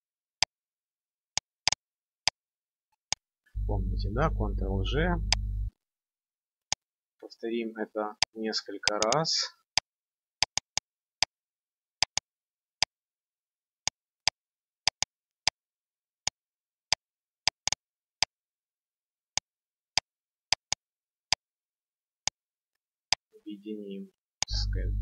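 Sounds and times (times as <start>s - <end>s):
mouse and keyboard clicking: 8.9s - 9.2s.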